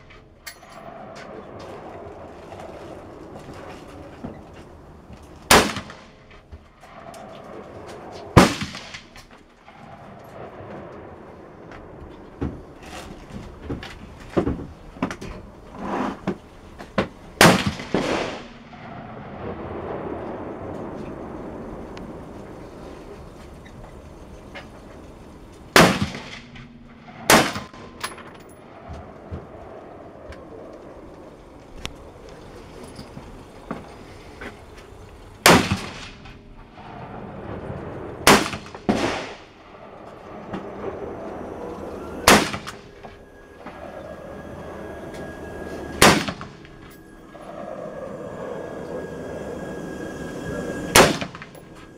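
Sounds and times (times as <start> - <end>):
rifle shots with echo: 5.5 - 6.1, 8.3 - 11.6, 17.4 - 20.4, 25.8 - 26.4, 27.1 - 28.0, 35.4 - 36.2, 36.8 - 40.9, 42.2 - 43.0, 46.0 - 46.6
rifle shots ringing off concrete: 38.2 - 39.4.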